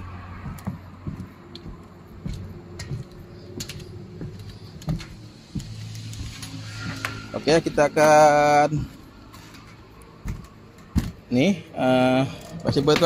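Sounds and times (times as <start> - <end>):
light clicks and knocks: 0.4 - 6.4.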